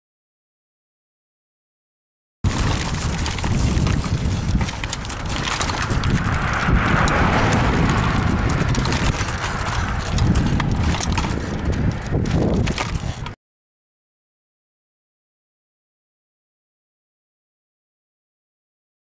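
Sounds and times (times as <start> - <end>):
wind rumbling on microphone: 2.4 - 13.4.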